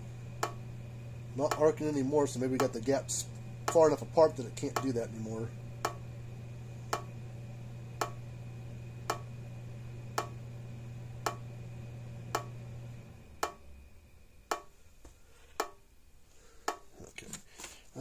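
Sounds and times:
low steady hum: 0:00.0 - 0:18.0
electric fence charger ticking: 0:00.3 - 0:06.2, 0:06.8 - 0:07.2, 0:07.9 - 0:09.4, 0:10.0 - 0:11.6, 0:12.2 - 0:13.8, 0:14.4 - 0:14.8, 0:15.6 - 0:15.8.

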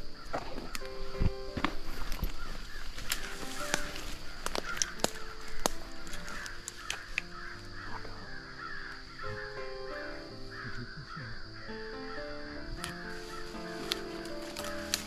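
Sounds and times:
twigs and leaves snapping underfoot: 0:00.0 - 0:09.2, 0:12.7 - 0:15.0
high insect drone: 0:00.0 - 0:15.0
harsh crow-like calls: 0:02.3 - 0:15.0.

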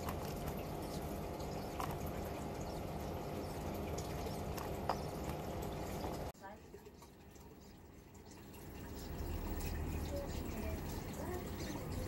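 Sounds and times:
steady hiss and faint hum: 0:00.0 - 0:12.0.

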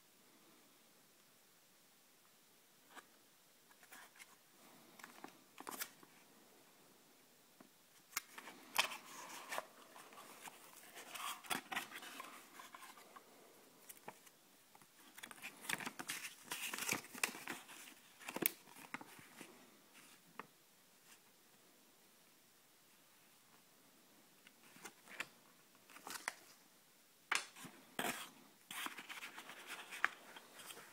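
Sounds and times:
paper rustling and crinkling: 0:13.8 - 0:20.2, 0:27.5 - 0:30.9.

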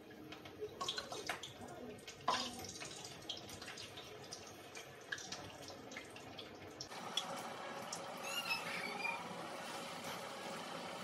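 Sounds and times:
food deep-frying in oil: 0:00.0 - 0:11.0.

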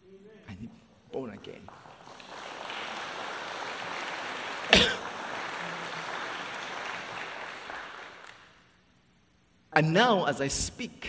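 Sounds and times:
congregation applauding: 0:01.1 - 0:08.8.

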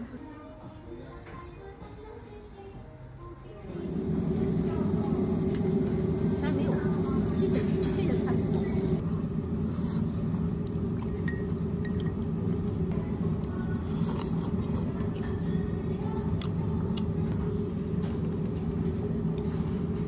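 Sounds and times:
low rumble: 0:03.7 - 0:11.0.

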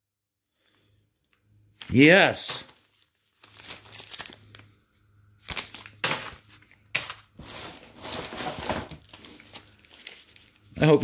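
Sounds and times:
plastic bags crinkling: 0:02.4 - 0:11.0.

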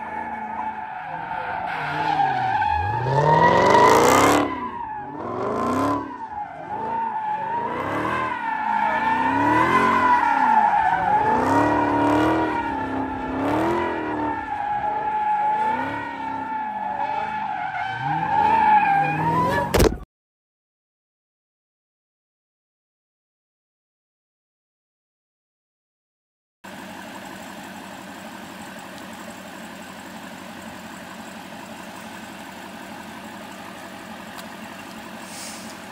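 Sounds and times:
car engine revving: 0:00.0 - 0:19.8.

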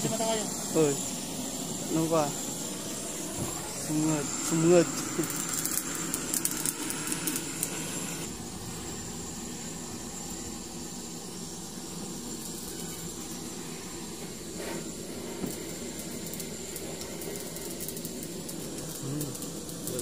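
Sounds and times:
gas torch hissing: 0:00.0 - 0:20.0.

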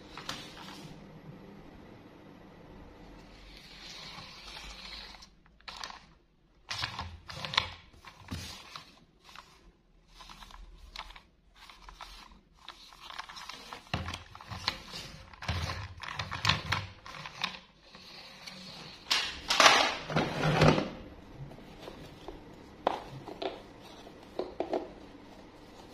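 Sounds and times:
plastic toy clicking and rubbing: 0:03.6 - 0:19.3.

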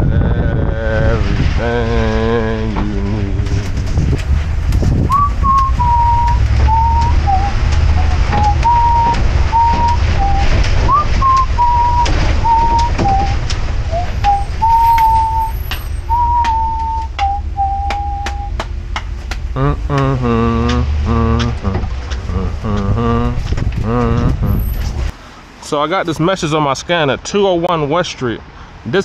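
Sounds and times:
truck engine rumble: 0:00.0 - 0:26.6
road rumble: 0:00.0 - 0:29.0
person whistling a tune: 0:05.1 - 0:18.7.

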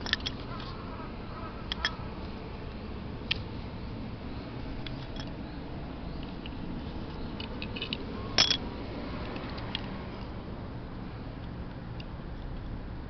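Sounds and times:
small metal and plastic clicks: 0:00.0 - 0:00.7, 0:01.7 - 0:02.0.

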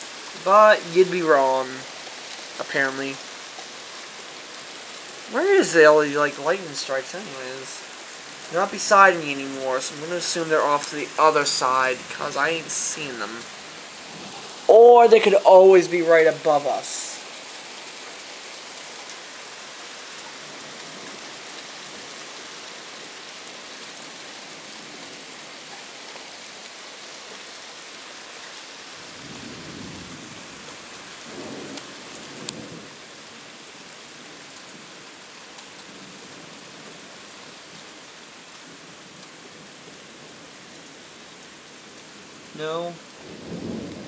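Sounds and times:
steady rain: 0:00.0 - 0:44.0
thunder rumble: 0:29.1 - 0:32.9, 0:43.2 - 0:44.0.

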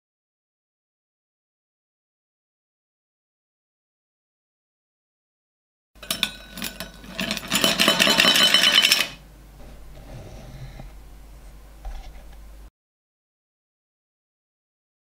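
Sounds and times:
quiet steady hum: 0:06.0 - 0:12.7.

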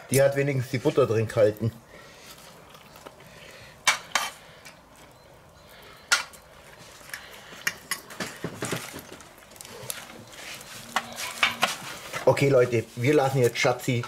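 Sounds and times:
utensils scraping pan: 0:10.3 - 0:12.5.

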